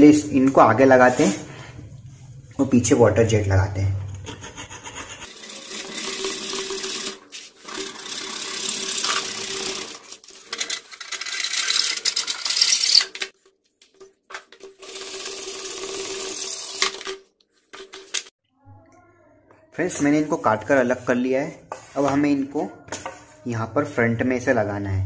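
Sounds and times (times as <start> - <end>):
hacksaw cutting wood: 4.2 - 13.2.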